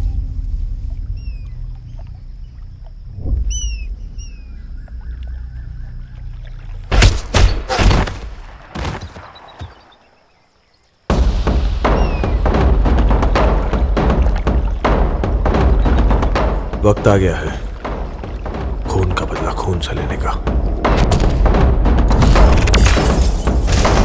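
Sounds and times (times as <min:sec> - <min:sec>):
birds chirping: 0:00.8 - 0:23.7
gunshots: 0:20.8 - 0:24.0.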